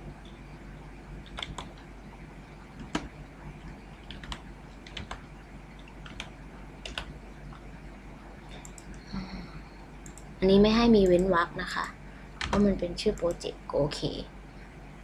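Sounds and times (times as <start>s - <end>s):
steady low hum: 0.0s - 15.0s
keyboard key presses: 1.2s - 1.8s, 2.8s - 3.1s, 4.0s - 5.2s, 5.8s - 7.6s, 12.4s - 13.4s.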